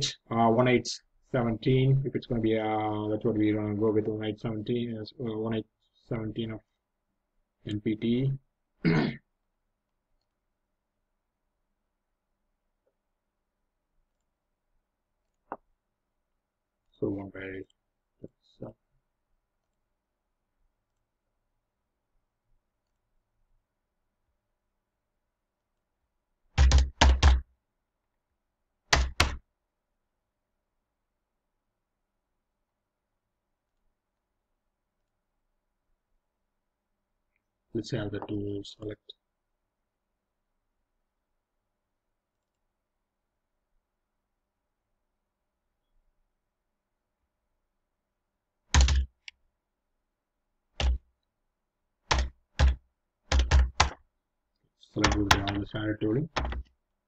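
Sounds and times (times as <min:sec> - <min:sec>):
heavy keyboard keystrokes: 0:26.6 - 0:27.4, 0:48.7 - 0:49.1, 0:50.8 - 0:51.0, 0:52.1 - 0:54.0, 0:55.0 - 0:55.7, 0:56.3 - 0:56.7.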